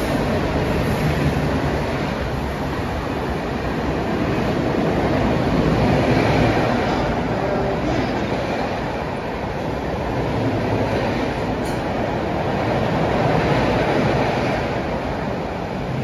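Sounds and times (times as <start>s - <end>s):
electric train rumbling: 0.0s - 16.0s
wheels clattering on rails: 4.4s - 15.2s.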